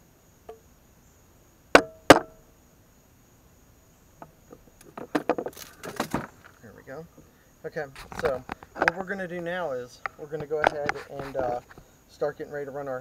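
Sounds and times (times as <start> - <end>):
handling rustle: 4.8 - 6.9, 7.9 - 11.9.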